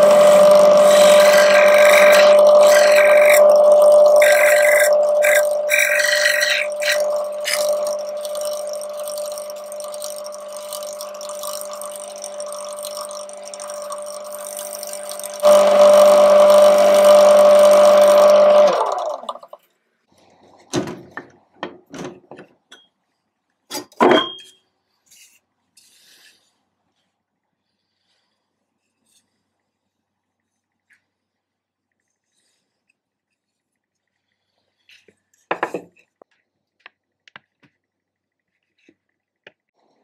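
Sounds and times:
cloth rubbing spinning bowl: 0.0s - 19.2s
lathe motor humming: 0.0s - 19.5s
lathe winding down: 0.0s - 19.6s.

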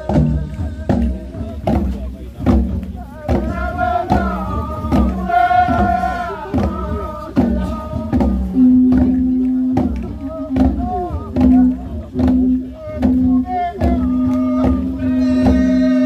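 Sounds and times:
hourglass drums beating: 0.0s - 16.0s
group chanting in unison: 3.0s - 8.6s.

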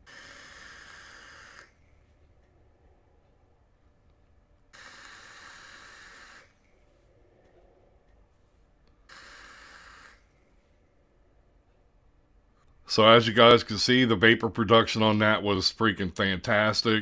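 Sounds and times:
electronic cigarette hissing drag: 0.0s - 1.8s, 4.7s - 6.7s, 9.0s - 10.4s.

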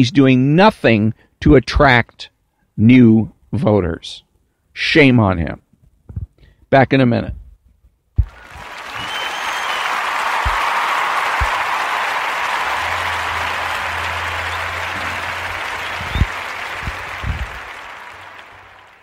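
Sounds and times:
crowd applause: 8.2s - 19.0s.

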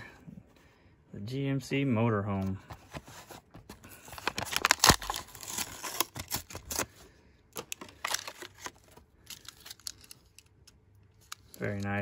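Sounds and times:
plastic blister pack crackling: 3.9s - 6.9s.

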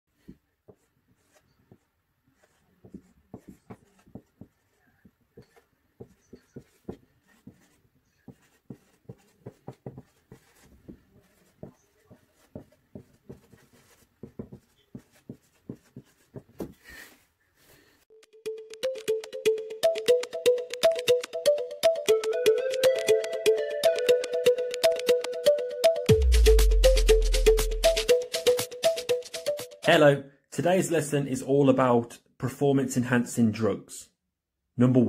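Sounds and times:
marker writing on whiteboard: 0.2s - 16.8s.

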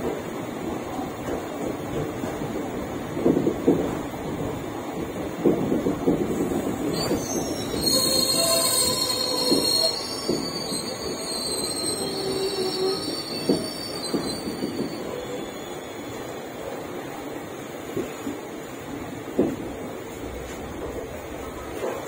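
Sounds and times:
train rumble: 0.0s - 22.0s
train wheels squealing on rails: 6.4s - 16.6s.

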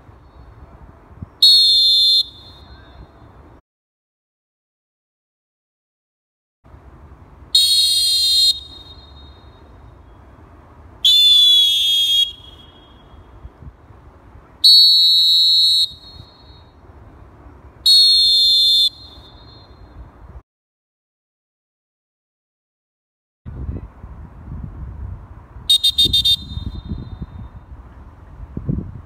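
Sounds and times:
faint low background noise: 0.0s - 3.6s, 6.7s - 20.4s
referee whistle blasts: 1.4s - 3.1s, 7.6s - 9.6s, 11.0s - 13.1s, 14.6s - 16.7s, 17.9s - 19.8s, 25.7s - 27.3s.

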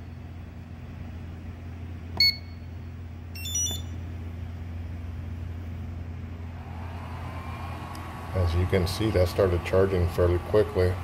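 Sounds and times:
charger beep: 2.2s - 2.7s, 3.4s - 4.0s
high chirping beeps: 2.2s - 2.7s, 3.4s - 4.0s.

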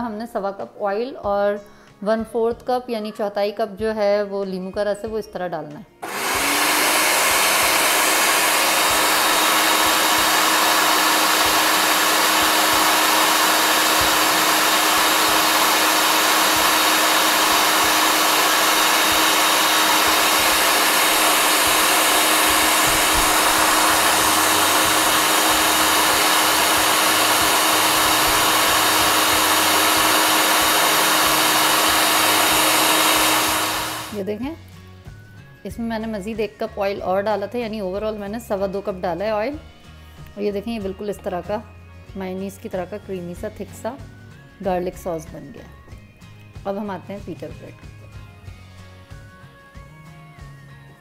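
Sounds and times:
food processor whirring: 6.0s - 34.2s.

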